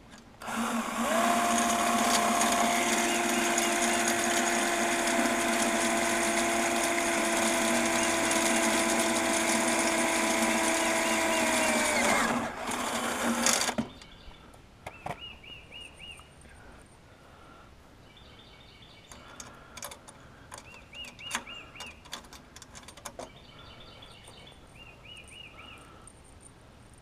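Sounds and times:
cordless power tool running: 0:00.4 - 0:13.9
bird singing: 0:13.8 - 0:16.6, 0:18.0 - 0:19.4, 0:20.5 - 0:22.1, 0:23.2 - 0:26.1
bird chirps: 0:13.9 - 0:16.4, 0:20.6 - 0:22.1, 0:23.2 - 0:26.1.

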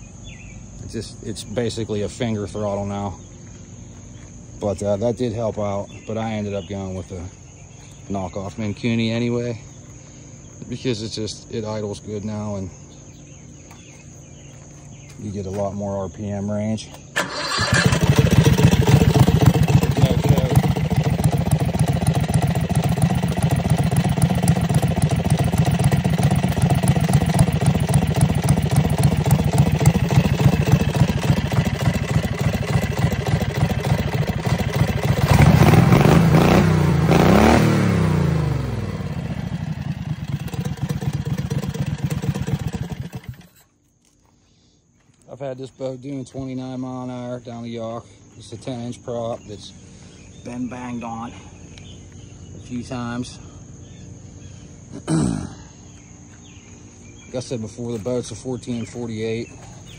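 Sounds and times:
mud motor engine running: 0:17.2 - 0:43.7, 0:56.0 - 0:59.9.

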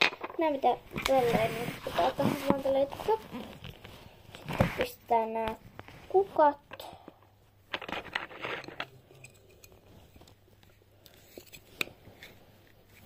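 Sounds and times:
faint rustling scrape: 0:00.4 - 0:06.6.

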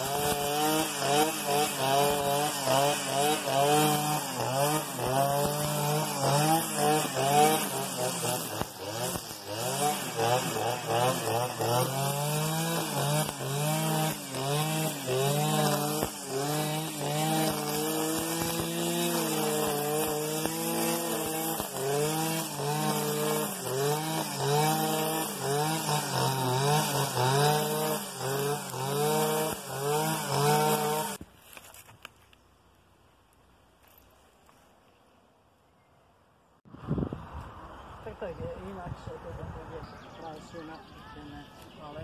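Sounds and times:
brushcutter cutting grass: 0:00.0 - 0:32.2.

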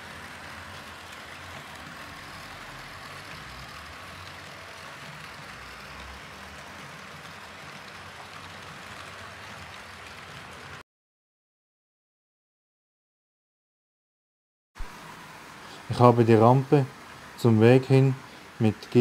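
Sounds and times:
model train rolling on track: 0:00.0 - 0:10.8, 0:14.9 - 0:19.0.

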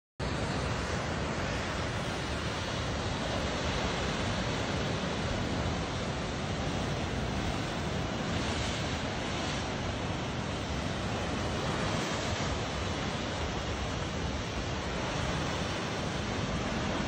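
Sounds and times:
surf breaking over rocky shore: 0:00.2 - 0:17.0.

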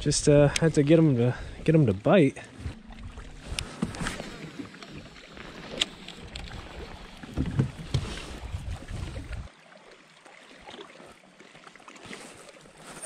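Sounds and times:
water lapping at kayak hull: 0:00.0 - 0:13.0
wind rumbling on microphone: 0:06.2 - 0:09.5.

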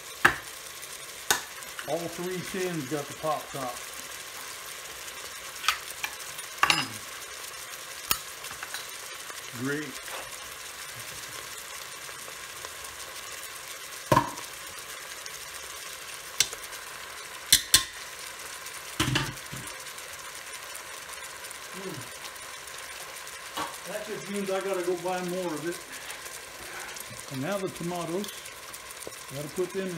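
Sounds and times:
meatballs sizzling in a pot: 0:00.0 - 0:29.9.

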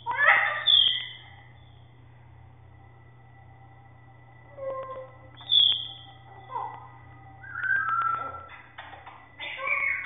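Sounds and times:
bird whistling: 0:00.0 - 0:01.4, 0:04.5 - 0:06.8, 0:07.4 - 0:08.5.

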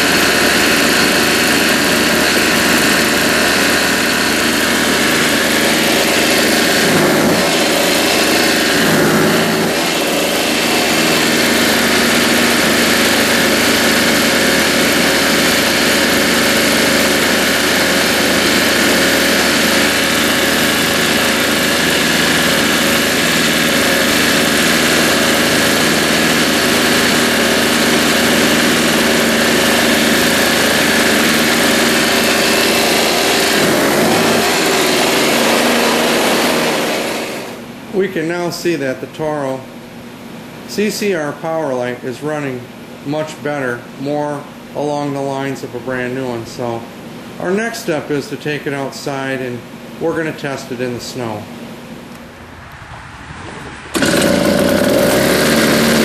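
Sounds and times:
snowblower engine running: 0:00.0 - 0:37.8, 0:53.9 - 0:56.0.

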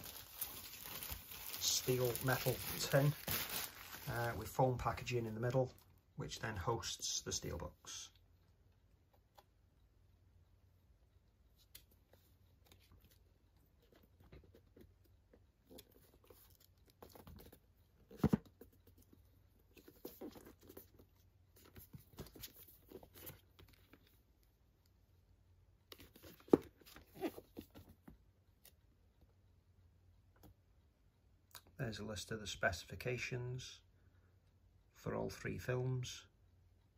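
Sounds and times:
packaging rustling and scraping: 0:00.0 - 0:04.1.

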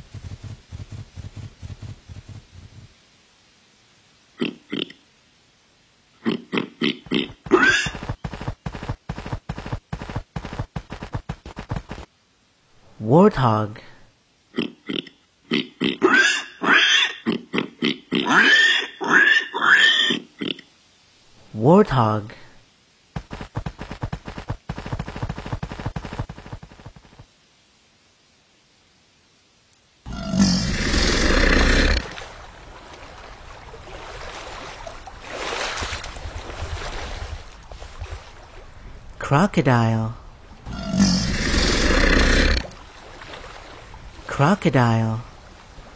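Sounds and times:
warthog grunting: 0:30.1 - 0:32.2, 0:40.7 - 0:42.7
warthog high rising calls: 0:30.1 - 0:32.2, 0:40.6 - 0:42.7
water lapping and sloshing: 0:32.0 - 0:39.2, 0:40.2 - 0:40.8, 0:42.6 - 0:45.9.

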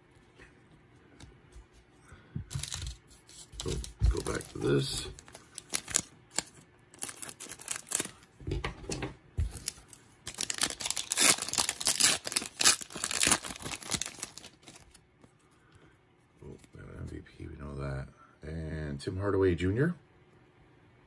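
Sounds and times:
plastic wrapper crinkling: 0:02.5 - 0:08.3, 0:09.5 - 0:15.0.

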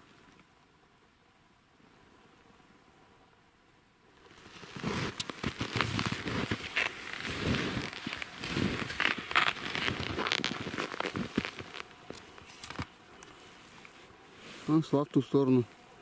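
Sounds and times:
skis crunching through snow: 0:04.2 - 0:15.0.

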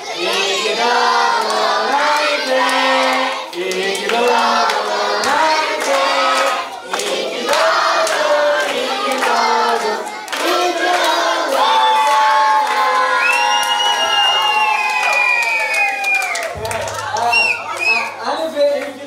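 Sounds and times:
group of voices singing: 0:00.0 - 0:13.6
hand clapping: 0:01.3 - 0:19.0.

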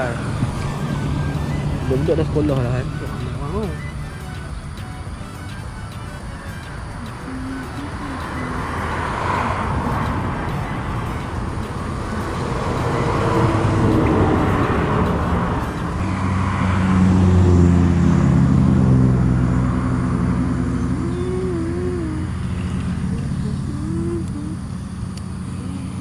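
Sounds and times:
low engine drone: 0:00.0 - 0:26.0
vehicles passing: 0:00.0 - 0:26.0.

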